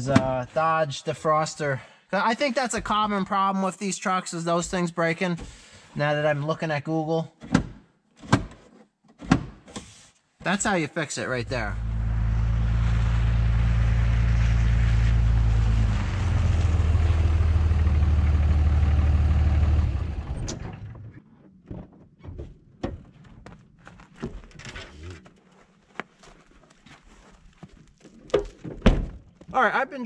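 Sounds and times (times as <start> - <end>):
diesel truck engine running: 11.4 - 21.0.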